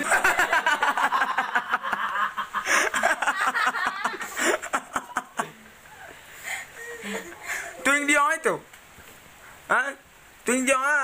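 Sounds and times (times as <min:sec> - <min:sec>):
child giggling: 0:00.0 - 0:07.8.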